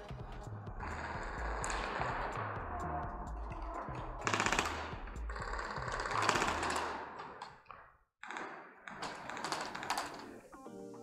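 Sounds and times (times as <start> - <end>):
airsoft guns firing full-auto: 3.5 - 7.5, 8.2 - 10.4.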